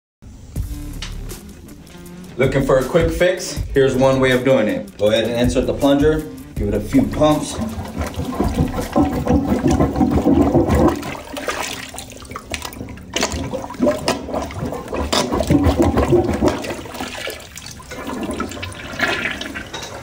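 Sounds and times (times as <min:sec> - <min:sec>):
plunger pumping in toilet: 0:06.6 - 0:20.0
water sloshing and splashing: 0:06.6 - 0:20.0.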